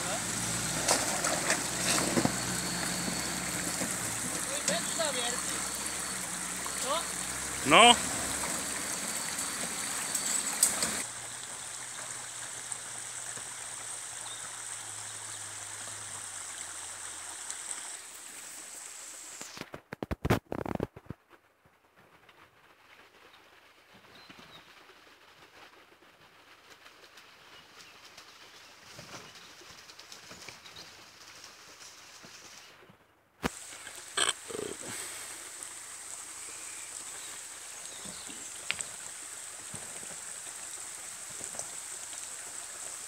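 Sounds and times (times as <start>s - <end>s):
rocky stream rushing: 0.0s - 19.4s, 33.5s - 43.0s.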